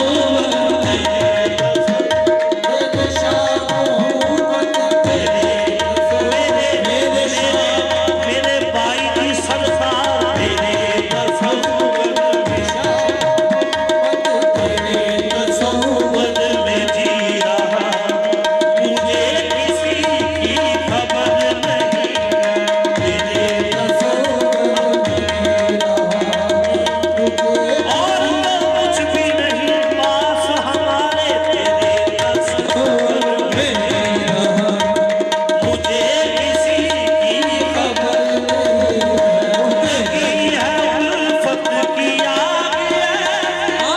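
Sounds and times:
harmonium: 0.0 - 43.9
tabla drumming: 0.0 - 43.9.

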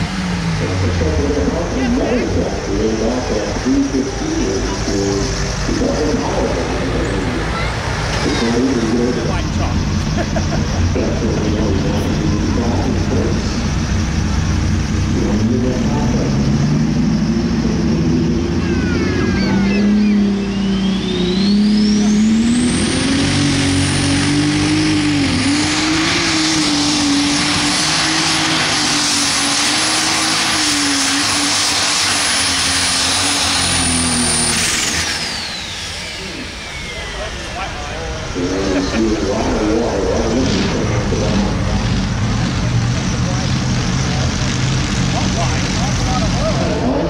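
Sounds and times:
diesel tractor engine under load: 0.0 - 47.0
high turbo whistle: 19.3 - 22.4.

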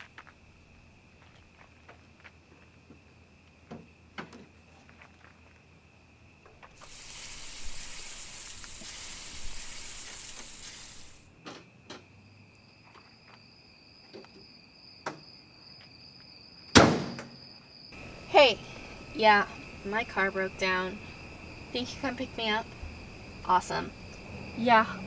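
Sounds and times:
insects trilling: 0.0 - 25.0
footsteps: 1.1 - 3.1
steady hiss from engine bay: 6.7 - 11.3.

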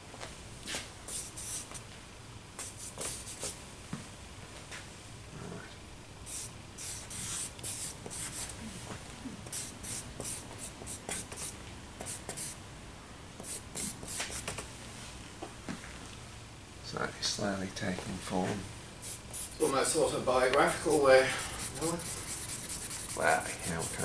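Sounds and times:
charcoal scratching on paper: 1.1 - 1.8, 2.6 - 3.5, 6.3 - 8.5, 9.5 - 12.6, 13.4 - 14.7, 19.0 - 19.7, 20.6 - 24.0.

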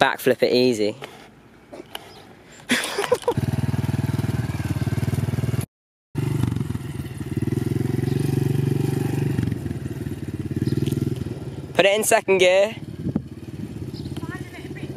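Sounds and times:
small motorbike engine running: 3.0 - 11.8, 12.8 - 14.9.

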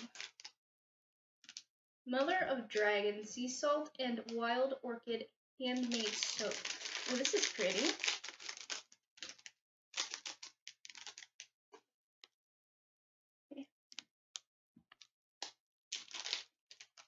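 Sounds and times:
plastic bag and tissue crinkling: 0.0 - 0.5, 5.7 - 11.4, 16.0 - 17.0.

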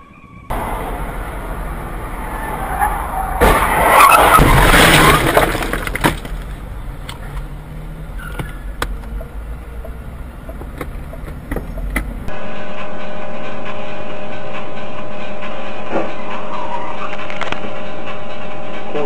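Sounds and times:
road noise: 0.0 - 19.0
steady hum: 0.5 - 3.9
loud car crash: 0.5 - 7.4
debris clicking: 2.6 - 7.5.

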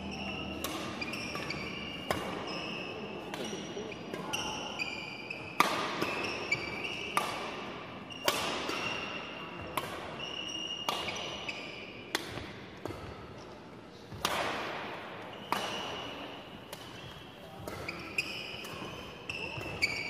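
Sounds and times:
shoes squeaking on floor: 0.0 - 7.2, 8.0 - 12.0, 15.3 - 20.0
rackets hitting shuttlecock: 0.0 - 20.0.

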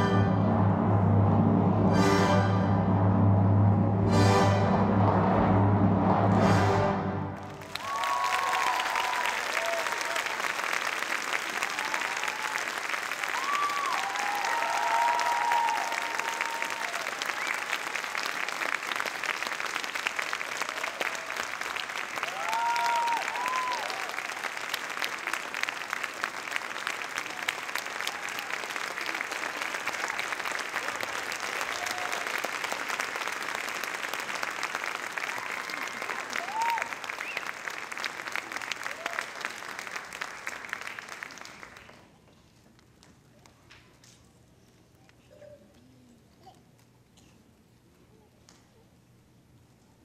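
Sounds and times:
audience applauding: 7.4 - 42.2
voices cheering: 7.6 - 10.5, 11.4 - 18.4, 20.6 - 24.4, 30.0 - 32.6, 35.2 - 37.5.

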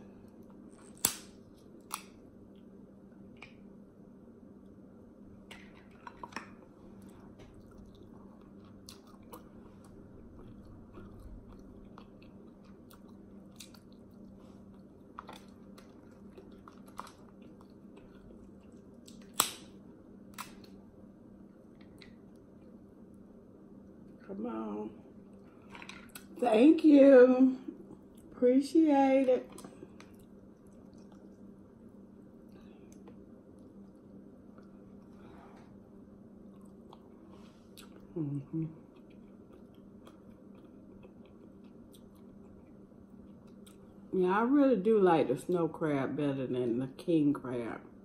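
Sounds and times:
faint steady hum: 0.0 - 48.0
quiet chewing: 5.4 - 19.5, 21.4 - 23.2, 27.6 - 28.4, 29.4 - 44.1
crab shells cracking: 15.0 - 20.8.

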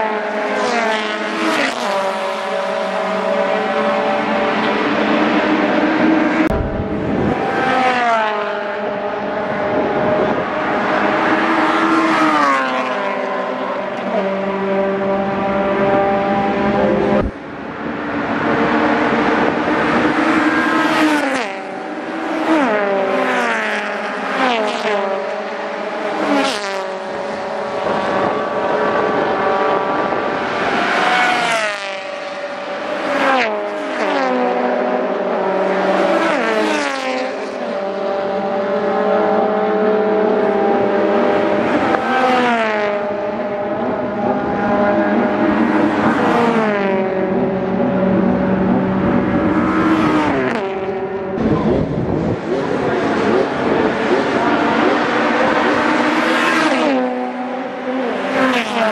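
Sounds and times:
race cars passing at high revs: 0.0 - 58.9
steady engine drone: 3.1 - 11.9, 37.6 - 58.8.

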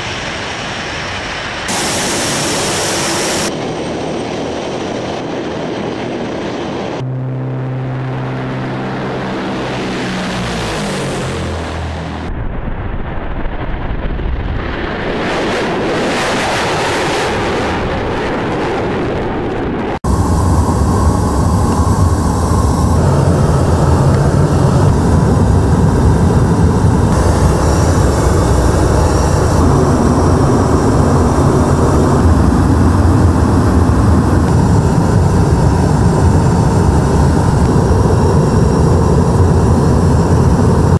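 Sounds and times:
aircraft engines droning: 0.0 - 12.4, 15.0 - 40.9
aircraft rushing: 0.0 - 40.9.

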